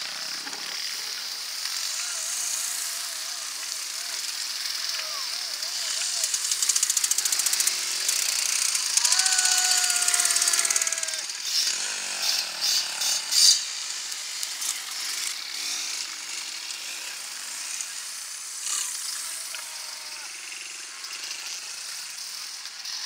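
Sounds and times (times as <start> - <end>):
dirt bike engine passing: 0.0 - 22.2
distant engines: 0.0 - 23.0
short sharp bursts: 0.8 - 16.4.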